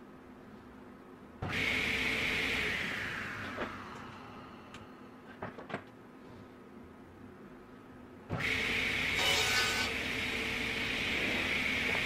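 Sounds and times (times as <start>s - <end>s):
woodshop machine whining: 9.1s - 10.1s.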